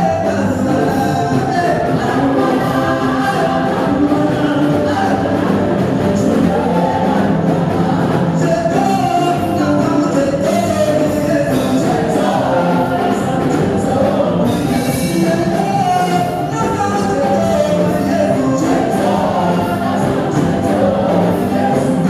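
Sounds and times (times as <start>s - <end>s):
backing singers: 0.0s - 22.0s
band accompaniment: 0.0s - 22.0s
man singing lead: 0.0s - 22.0s.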